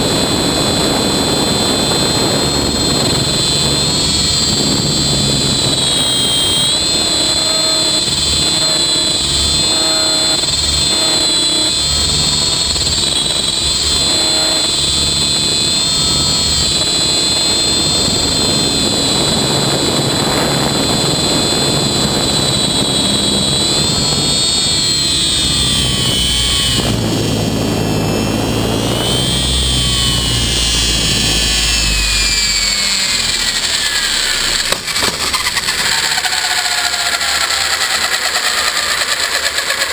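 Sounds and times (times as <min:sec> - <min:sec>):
electric motor whine: 0:00.0 - 0:39.9
helicopter rotor noise: 0:00.0 - 0:39.9.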